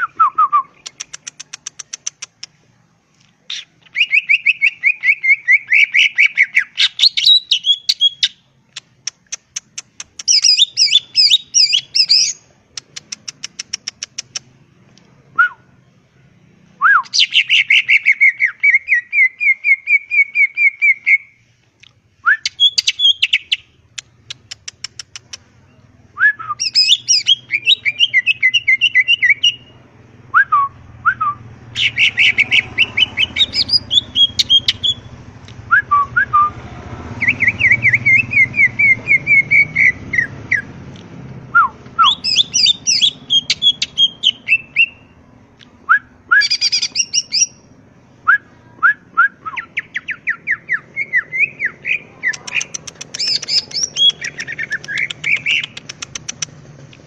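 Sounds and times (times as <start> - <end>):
bird trilling and whistling: 3.5 - 8.4, 9.0 - 14.4, 16.8 - 21.4, 22.2 - 25.4, 26.2 - 29.7, 30.4 - 35.1, 37.2 - 40.7, 41.5 - 45.2, 45.9 - 47.7, 48.3 - 56.5.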